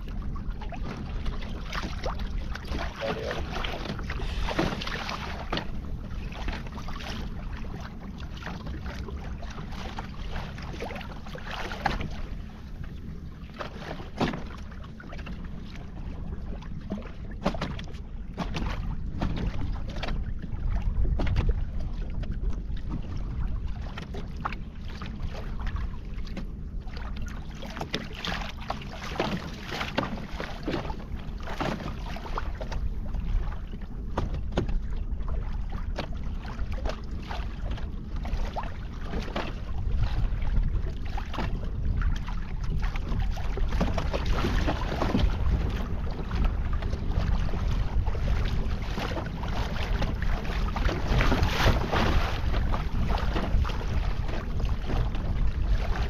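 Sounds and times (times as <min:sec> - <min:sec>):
water splashing against kayak hull: 0:00.0 - 0:56.0
wind buffeting microphone: 0:37.6 - 0:56.0.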